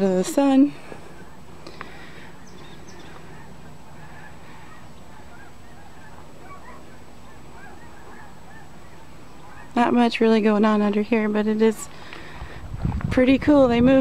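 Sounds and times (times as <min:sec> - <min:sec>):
low background rumble: 0:00.0 - 0:14.0
faint bird calls: 0:00.7 - 0:10.2.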